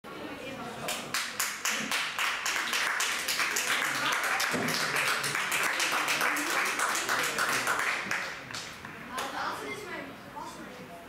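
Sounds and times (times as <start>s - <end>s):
crowd applauding: 1.0s - 8.8s.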